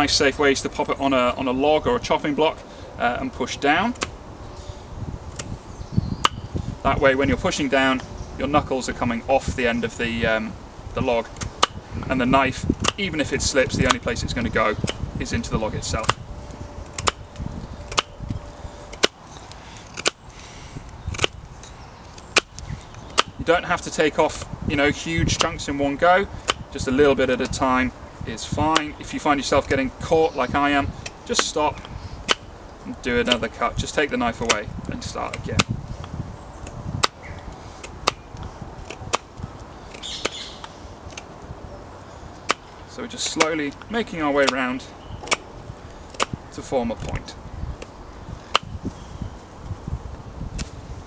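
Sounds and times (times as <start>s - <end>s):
knife carving wood cracking: 12.8s - 13.0s, 16.0s - 16.2s, 17.8s - 18.2s, 18.9s - 20.3s, 20.9s - 23.4s, 26.4s - 26.7s, 31.0s - 32.5s, 36.6s - 41.3s, 42.4s - 45.5s, 46.1s - 46.4s.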